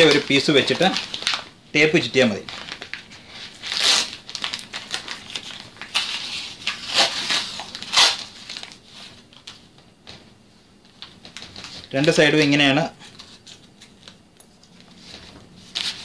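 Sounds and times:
paper and cardboard crinkling: 0:00.0 - 0:01.5, 0:02.3 - 0:10.3, 0:10.9 - 0:14.2, 0:14.8 - 0:16.0
packing tape ripped off roll: 0:02.5 - 0:09.6.

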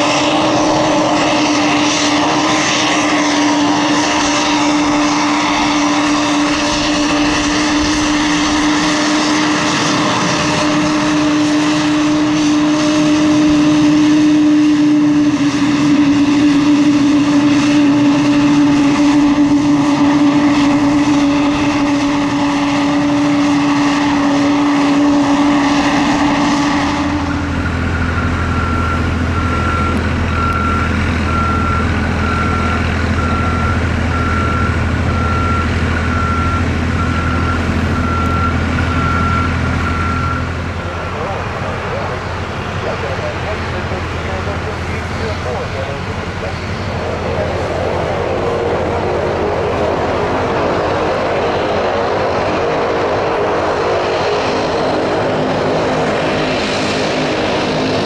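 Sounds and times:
truck engine hum: 0:00.0 - 0:58.0
turboprop engines droning: 0:00.0 - 0:58.0
warning beeper: 0:04.1 - 0:49.4.

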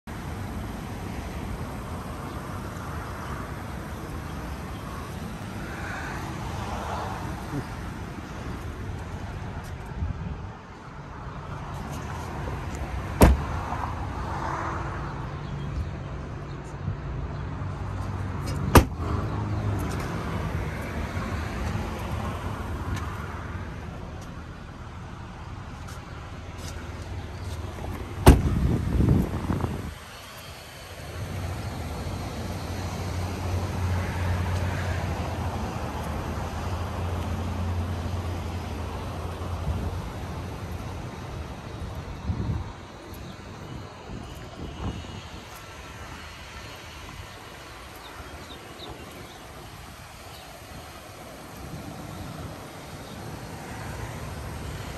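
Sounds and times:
passing traffic: 0:00.0 - 0:54.9
car trunk slamming shut: 0:13.2 - 0:13.5, 0:18.7 - 0:19.1, 0:28.2 - 0:28.6.

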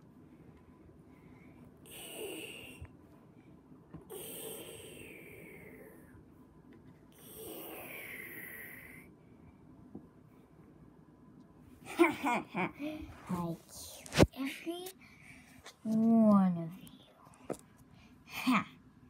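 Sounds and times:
person breathing loudly: 0:01.1 - 0:02.8, 0:04.1 - 0:06.2, 0:07.2 - 0:09.1.

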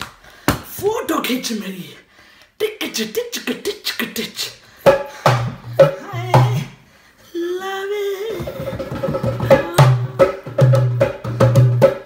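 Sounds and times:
dhol drums: 0:04.9 - 0:06.6, 0:08.6 - 0:12.0.

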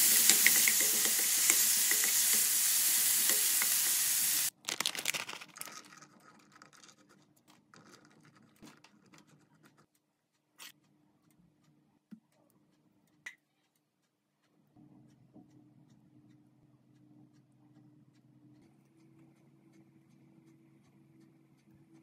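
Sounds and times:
food sizzling in a wok: 0:00.0 - 0:04.5
cheese being scattered: 0:04.5 - 0:06.4.

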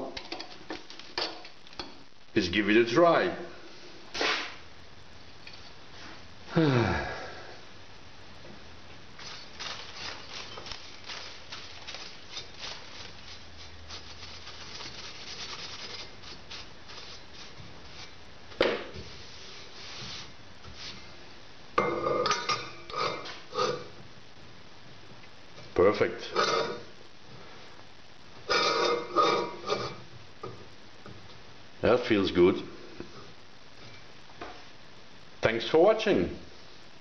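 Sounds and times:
paintbrush sweeping metal chips: 0:09.2 - 0:18.2, 0:19.0 - 0:21.0.

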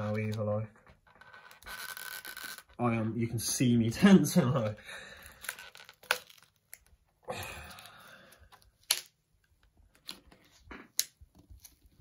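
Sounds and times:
rough plastic scraping: 0:00.0 - 0:03.1
plastic cracking: 0:05.2 - 0:11.9.

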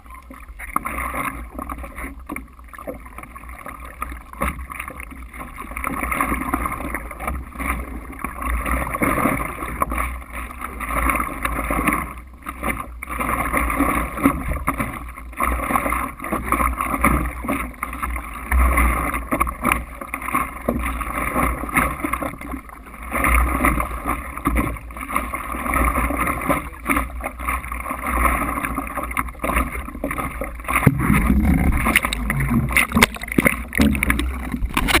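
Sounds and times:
water sloshing and splashing: 0:00.0 - 0:35.0
steady low rumble: 0:30.8 - 0:35.0.

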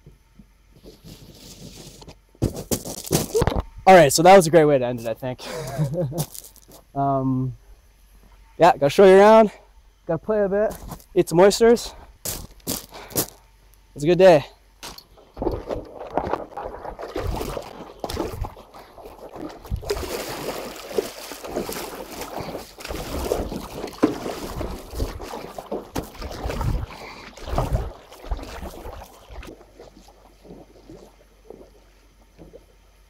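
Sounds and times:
wind buffeting microphone: 0:15.4 - 0:20.4, 0:22.4 - 0:29.6
water splashing from paddle strokes: 0:15.5 - 0:31.8.

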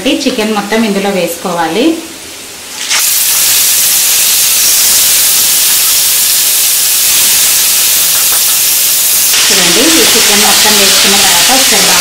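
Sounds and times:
chicken sizzling in hot oil: 0:02.7 - 0:12.0.

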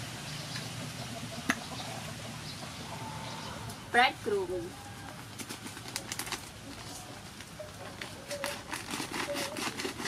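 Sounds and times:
plastic packet crinkling: 0:05.4 - 0:07.0, 0:08.0 - 0:10.0
bird cooing: 0:06.8 - 0:09.8.

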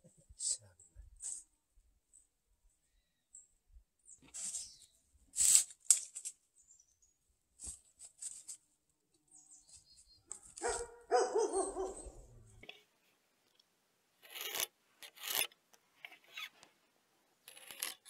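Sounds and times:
dog barking: 0:10.4 - 0:12.4.

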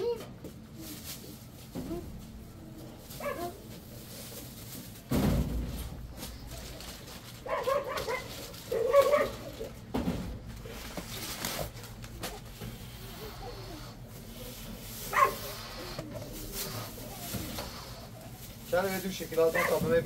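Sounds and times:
dog barking: 0:03.2 - 0:03.6, 0:07.4 - 0:09.6, 0:15.1 - 0:15.8, 0:19.5 - 0:19.9.

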